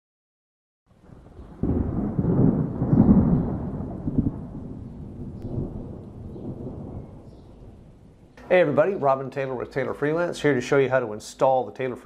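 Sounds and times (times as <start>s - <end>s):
thunder rumble: 0.9s - 10.5s.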